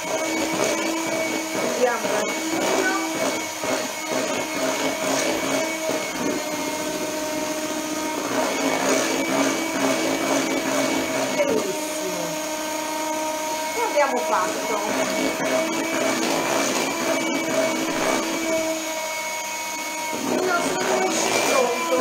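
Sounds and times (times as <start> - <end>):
electric hand mixer whirring: 0.0 - 22.0.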